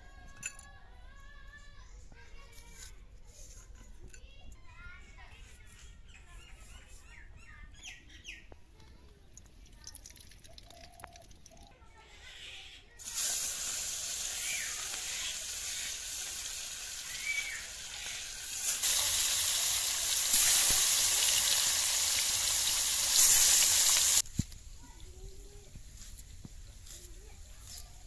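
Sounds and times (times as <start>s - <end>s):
fish sizzling in hot oil: 13.0s - 24.3s.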